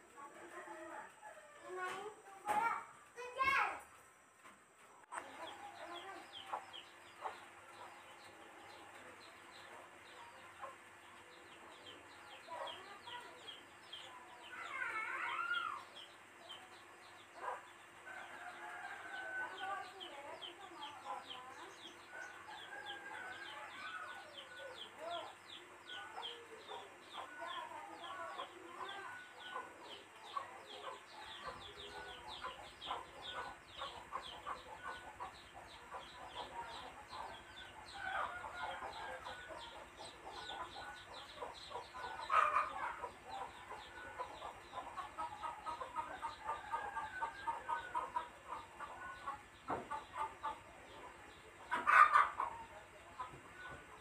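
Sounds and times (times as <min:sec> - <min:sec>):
chickens clucking: 0:00.0 - 0:54.0
chicken squawk: 0:42.0 - 0:43.4, 0:51.7 - 0:52.7.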